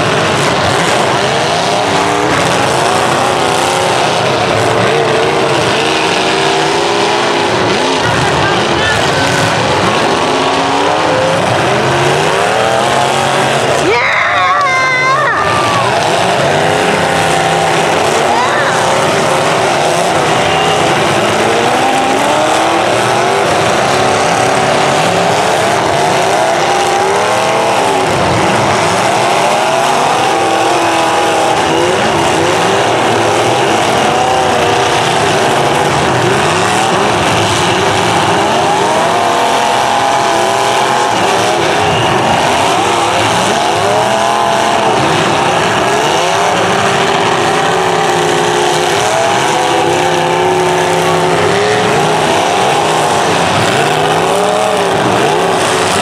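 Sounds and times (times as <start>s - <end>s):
car engines revving: 0.0s - 56.0s.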